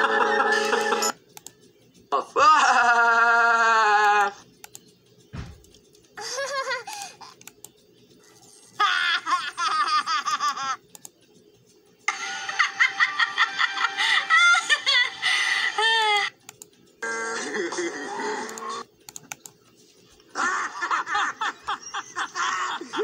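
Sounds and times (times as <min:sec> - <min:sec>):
cartoon characters laughing: 0:00.0 - 0:01.1, 0:06.2 - 0:07.4, 0:08.7 - 0:10.8, 0:12.1 - 0:16.4, 0:17.2 - 0:18.8, 0:20.3 - 0:23.0.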